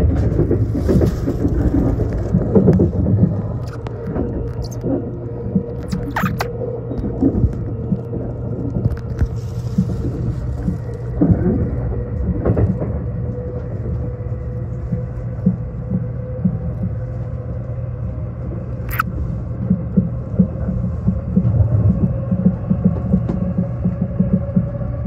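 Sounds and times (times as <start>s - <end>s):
train interior rumble: 0.0s - 25.0s
sharp high squeak: 5.9s - 6.5s.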